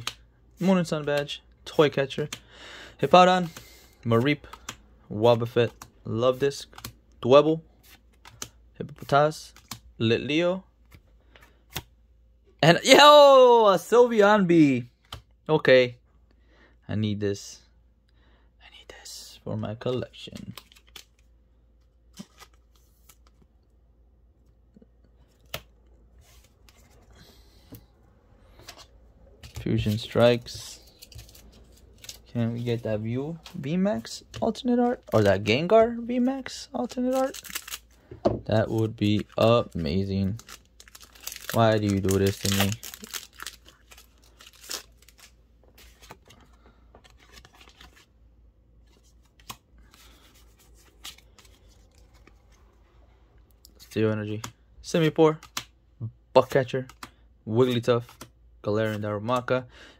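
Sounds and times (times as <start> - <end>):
cards sliding and handled: 3.2 - 7.0, 7.7 - 9.8, 10.8 - 12.0, 22.0 - 23.5, 25.2 - 38.0, 40.4 - 48.1, 48.8 - 52.8
foil wrapper crinkling: 36.8 - 45.3.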